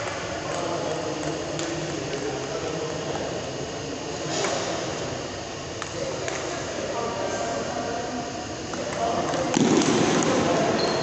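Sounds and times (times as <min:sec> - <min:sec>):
sports hall background hiss: 0:00.0 - 0:11.0.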